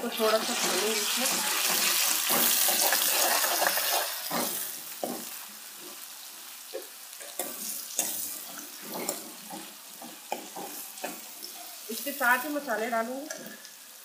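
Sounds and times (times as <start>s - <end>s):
onions sizzling in hot oil: 0.0s - 14.0s
metal spoon scraping pan: 0.2s - 5.3s, 7.2s - 12.0s.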